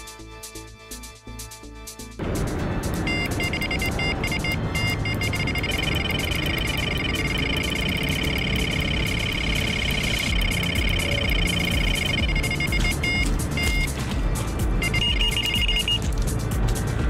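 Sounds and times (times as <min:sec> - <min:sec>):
rapid warbling alarm tone: 0:03.1 - 0:13.9
bite alarm bleeps: 0:03.1 - 0:14.0, 0:14.8 - 0:16.0.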